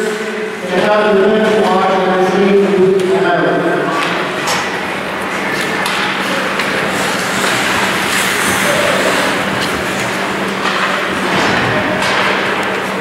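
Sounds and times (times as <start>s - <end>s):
stick or puck clacks: 5.5s - 6.7s, 9.5s - 11.1s
skates on ice: 5.5s - 11.4s.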